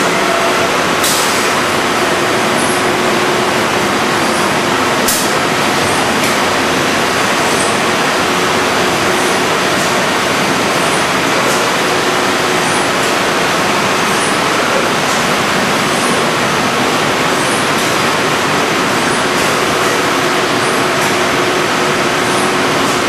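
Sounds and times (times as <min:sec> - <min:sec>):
compressed air hisses: 0:01.0 - 0:01.6.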